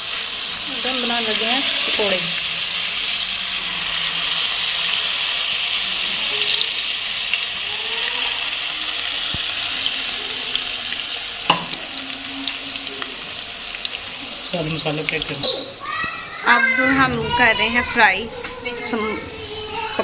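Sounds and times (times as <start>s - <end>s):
fritters sizzling in hot oil: 0.0s - 17.0s.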